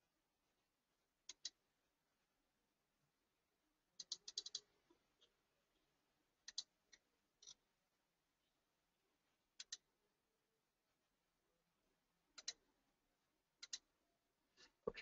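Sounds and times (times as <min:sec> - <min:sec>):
computer mouse and keyboard clicks: 0:01.2 - 0:01.6, 0:04.0 - 0:05.4, 0:06.4 - 0:07.6, 0:09.6 - 0:09.9, 0:12.3 - 0:12.6, 0:13.6 - 0:13.9.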